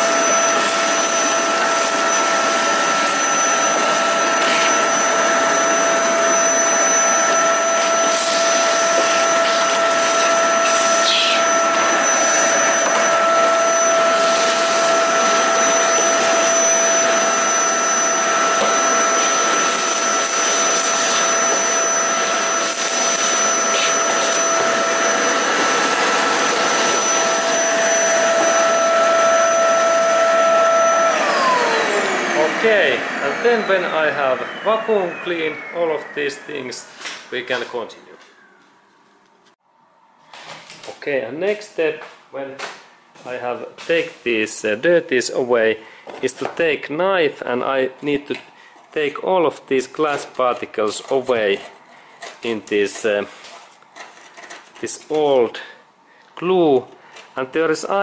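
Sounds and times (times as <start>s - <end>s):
vacuum cleaner whining: 0.0s - 39.6s.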